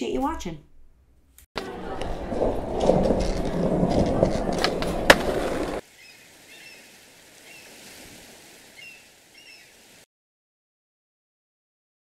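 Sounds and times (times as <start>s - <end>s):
skateboard clacks: 1.6s - 5.8s
skateboard wheels rolling: 1.6s - 5.8s.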